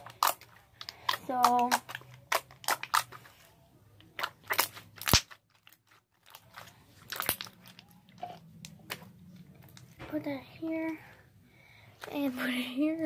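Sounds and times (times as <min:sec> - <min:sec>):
slime crackling pops: 0:04.2 - 0:05.4, 0:07.1 - 0:07.8.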